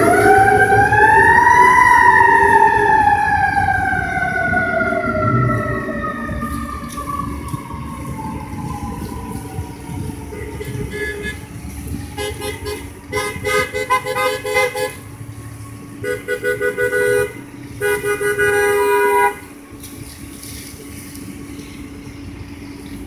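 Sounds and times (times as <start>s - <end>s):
siren wailing: 0.0s - 14.1s
traffic rumble: 0.0s - 23.0s
vehicle horns honking: 10.4s - 11.4s, 12.2s - 15.0s, 16.0s - 19.5s.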